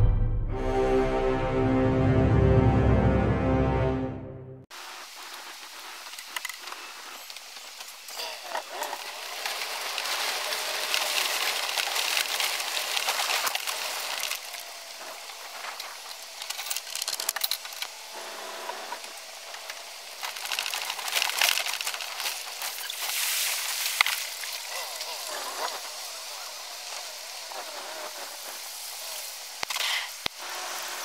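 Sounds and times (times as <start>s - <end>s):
tyres crunching over gravel: 6.2s - 31.0s.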